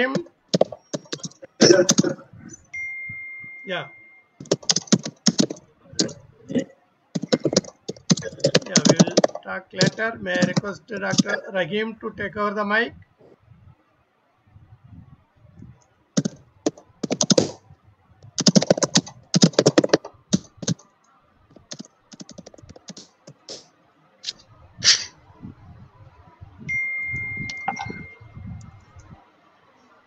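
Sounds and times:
keyboard typing: 0.0s - 2.7s, 4.4s - 11.4s, 16.2s - 17.6s, 18.2s - 20.8s, 21.5s - 23.6s, 27.1s - 29.1s
steady beep: 2.6s - 4.4s, 26.6s - 28.8s.

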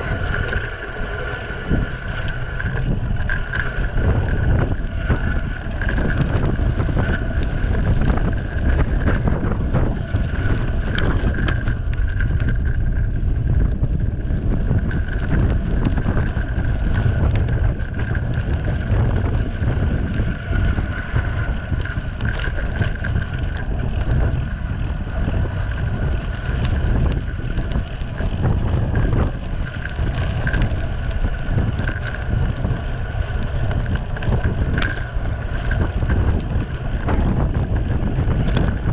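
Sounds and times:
tyres crunching on gravel: 0.0s - 12.9s
bicycle knocks and rattles: 0.0s - 38.9s
steady high whine: 0.0s - 38.9s
wind buffeting microphone: 0.0s - 38.9s.

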